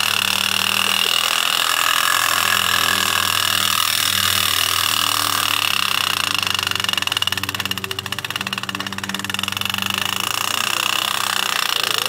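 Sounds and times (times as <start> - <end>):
clockwork toy train whirring on rails: 0.0 - 12.0.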